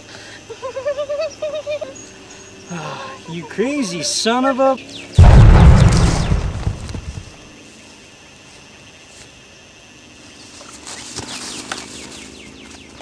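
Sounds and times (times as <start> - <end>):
bomb explosion rumble: 5.2 - 7.4.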